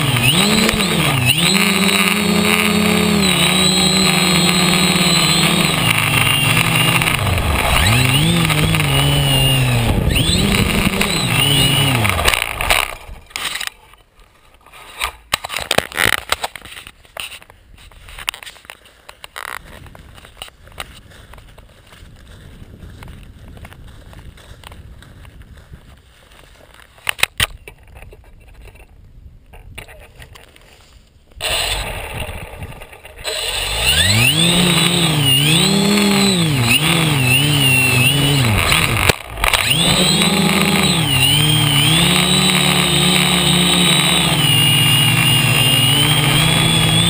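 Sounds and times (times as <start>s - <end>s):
drone motors buzzing whine: 0.0s - 13.4s, 33.3s - 47.0s
clicks: 34.0s - 47.0s.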